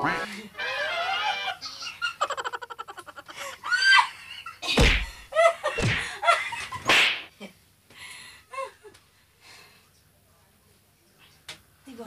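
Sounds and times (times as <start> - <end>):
wordless cries: 0.1 - 6.3
women laughing and squealing: 0.2 - 6.8.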